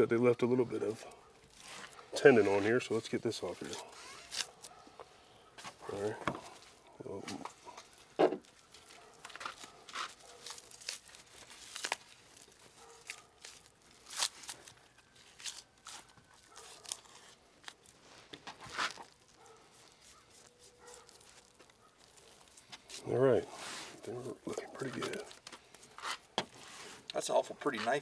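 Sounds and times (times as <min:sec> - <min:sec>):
fat tearing and scraping: 0:00.8 - 0:28.0
knife slicing meat: 0:15.3 - 0:17.4, 0:18.7 - 0:23.0.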